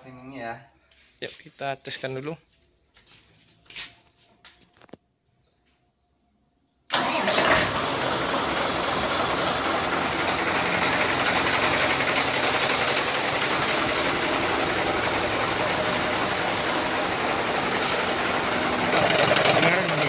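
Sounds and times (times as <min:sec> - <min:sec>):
diesel truck engine clattering: 0:06.9 - 0:20.0.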